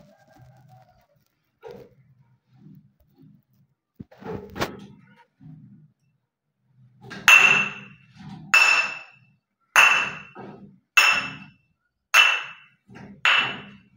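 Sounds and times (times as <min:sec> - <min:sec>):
glass bottles clinking: 0:07.3 - 0:08.0, 0:08.6 - 0:09.2, 0:09.8 - 0:10.4, 0:11.0 - 0:11.5, 0:12.2 - 0:12.7, 0:13.3 - 0:13.8.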